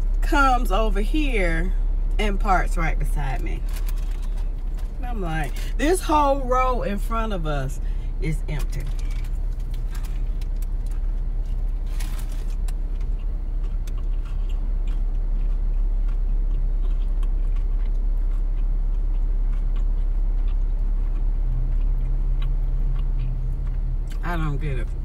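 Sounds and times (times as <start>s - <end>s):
car engine idling: 0.0s - 25.0s
wrapper paper crackling: 3.6s - 5.6s, 8.8s - 12.8s
person chewing: 8.8s - 24.2s.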